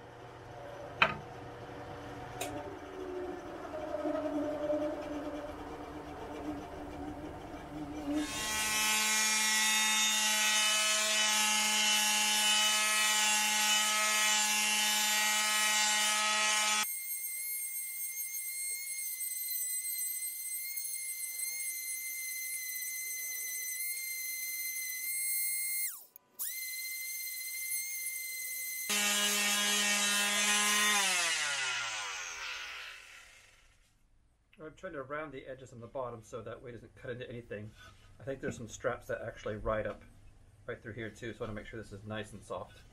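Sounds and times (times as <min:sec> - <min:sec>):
electric sander running: 0:22.6 - 0:33.7.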